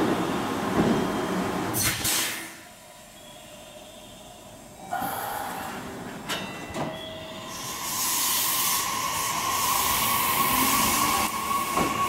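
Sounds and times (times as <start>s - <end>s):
electric train humming: 6.8s - 12.0s
loud hiss: 7.5s - 12.0s.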